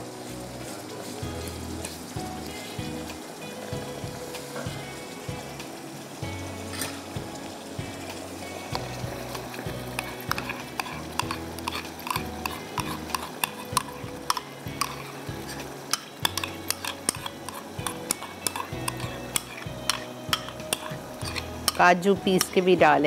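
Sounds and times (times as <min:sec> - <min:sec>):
soft background music: 0:00.0 - 0:23.0
utensil clicking and scraping a pot: 0:08.7 - 0:22.8.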